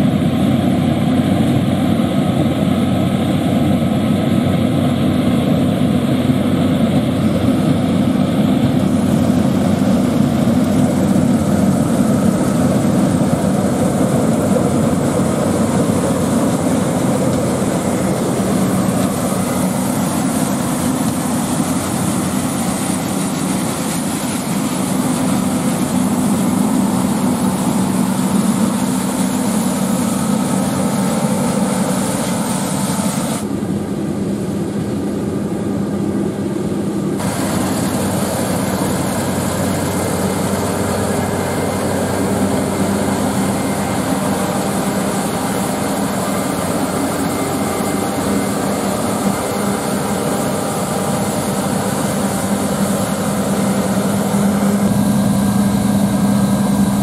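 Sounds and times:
combine harvester engine drone: 0.0 - 57.0
threshing noise: 7.5 - 33.6.

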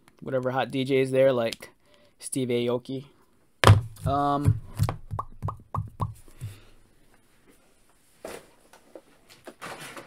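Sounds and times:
man's voice: 4.0 - 4.6.

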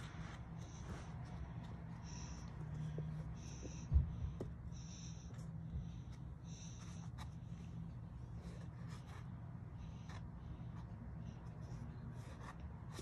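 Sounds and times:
scratching on cardboard: 6.1 - 13.0.

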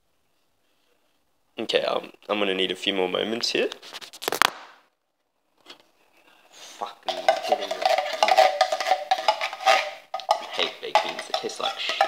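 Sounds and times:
metal spoon scraping ceramic bowl: 7.0 - 12.0.

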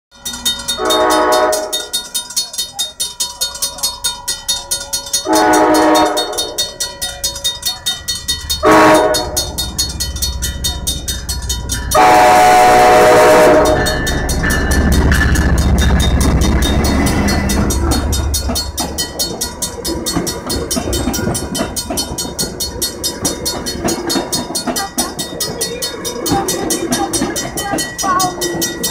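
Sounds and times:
crossing warning bells dinging: 0.1 - 28.9
locomotive rumbling: 0.1 - 28.9
train horn blasts: 0.8 - 1.9, 5.2 - 6.6, 8.6 - 9.6, 11.9 - 14.1.

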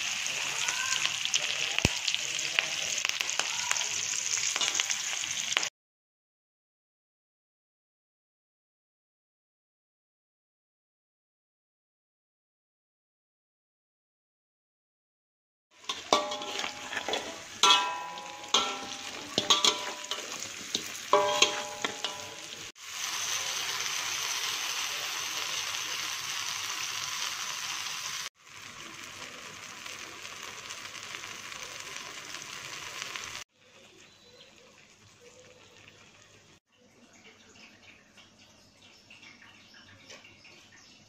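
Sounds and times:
loud sizzle in hot wok: 0.0 - 5.7, 15.8 - 36.7
metal spatula clanging on wok: 4.5 - 5.0, 15.8 - 22.7.

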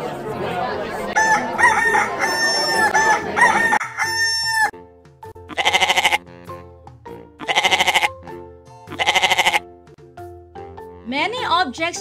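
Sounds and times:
rooster crowing: 1.2 - 4.7
goat bleating: 5.5 - 6.2, 7.4 - 8.2, 8.9 - 9.6.

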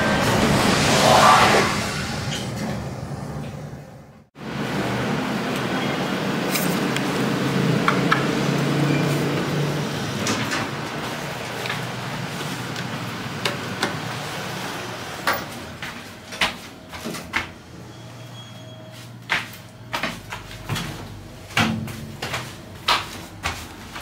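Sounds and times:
elevator doors sliding open: 0.0 - 4.0, 8.3 - 15.7.

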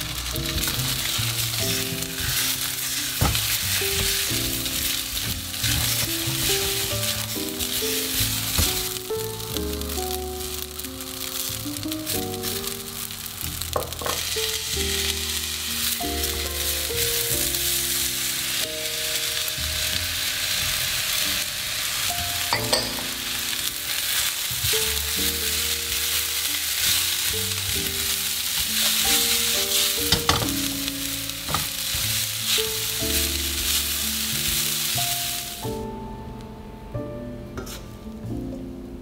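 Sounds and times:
rice sizzling in a wok: 0.0 - 36.0, 37.6 - 38.0
spatula stirring and scraping: 0.2 - 10.2, 21.9 - 35.6, 37.6 - 37.9.

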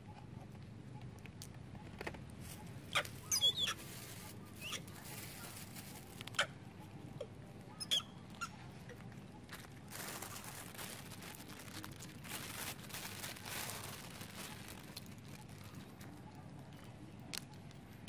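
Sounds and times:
high animal chirps: 2.9 - 3.8, 7.7 - 8.6.

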